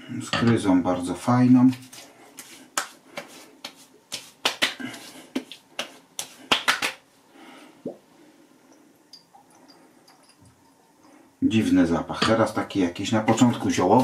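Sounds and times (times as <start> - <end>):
palms slapping face: 1.7 - 7.0.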